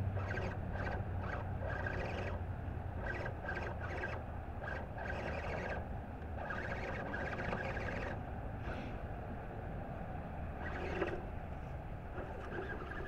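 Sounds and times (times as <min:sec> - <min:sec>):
electric motor whining in bursts: 0:00.0 - 0:08.3, 0:10.6 - 0:11.4, 0:12.1 - 0:13.0.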